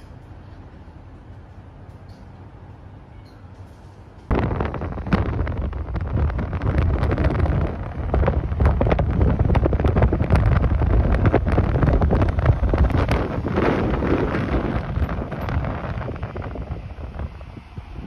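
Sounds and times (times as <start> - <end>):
wind buffeting microphone: 4.3 - 18.0.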